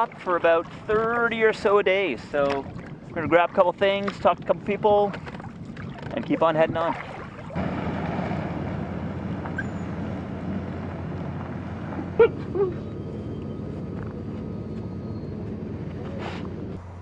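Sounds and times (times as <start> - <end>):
steady low hum: 6.9 - 17.0.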